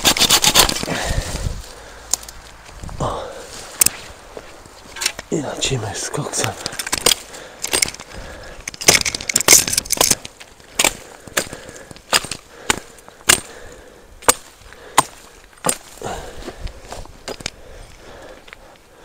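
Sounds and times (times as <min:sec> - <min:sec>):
blade chopping brush: 0:00.0 - 0:00.9.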